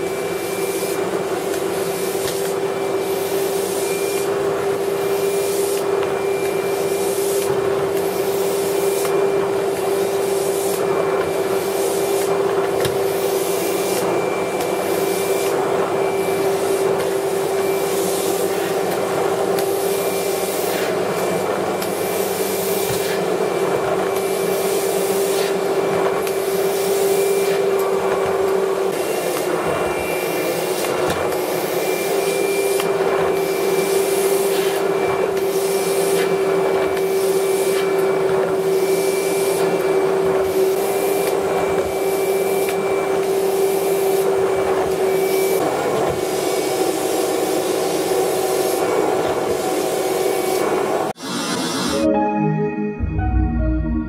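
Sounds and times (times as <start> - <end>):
vacuum cleaner running: 0.0 - 52.3
nozzle hissing on carpet: 0.3 - 23.6, 29.1 - 45.6.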